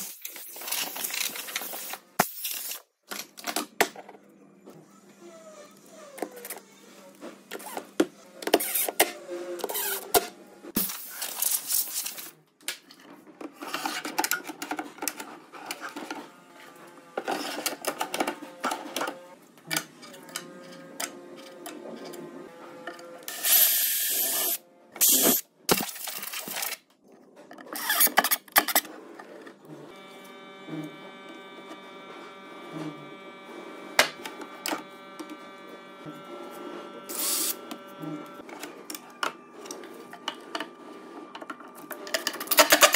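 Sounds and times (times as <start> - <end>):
cordless drill drilling: 23.3 - 25.4.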